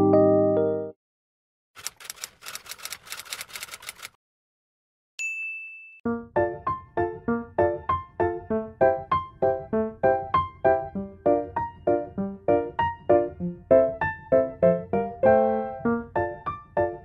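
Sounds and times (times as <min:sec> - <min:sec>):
rapid typing clicks: 0:01.8 - 0:04.2
high bell ding: 0:05.2 - 0:06.0.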